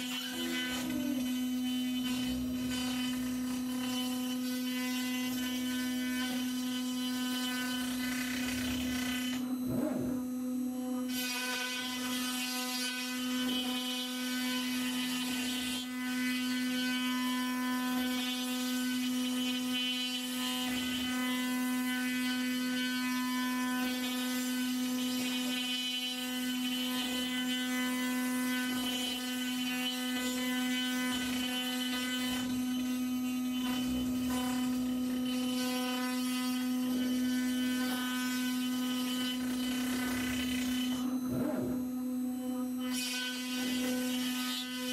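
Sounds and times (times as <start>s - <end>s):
router bit cutting wood: 0.0s - 44.9s
router spindle whine: 0.0s - 44.9s.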